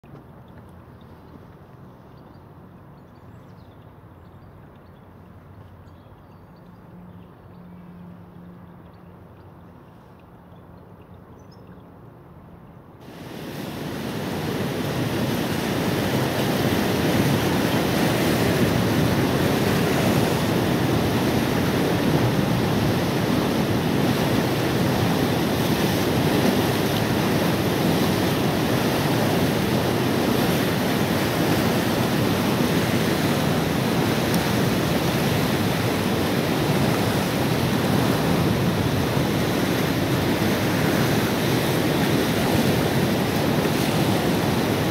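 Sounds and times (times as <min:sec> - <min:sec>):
floodwater rushing: 0:13.0 - 0:44.9.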